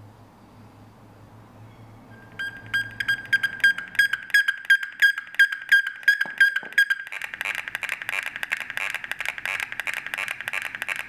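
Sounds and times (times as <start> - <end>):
electronic device pitched clicks: 2.2 - 11.0.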